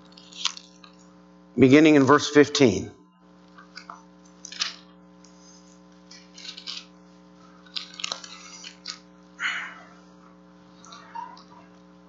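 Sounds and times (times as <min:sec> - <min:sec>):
electrical hum: 0:00.0 - 0:12.0
pages rustling: 0:04.4 - 0:07.0.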